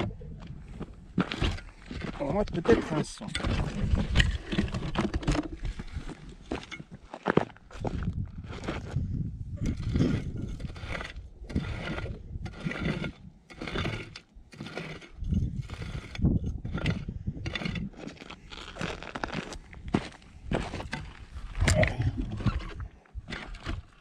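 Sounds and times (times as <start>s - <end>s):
pick striking stony soil: 0.0s - 7.0s.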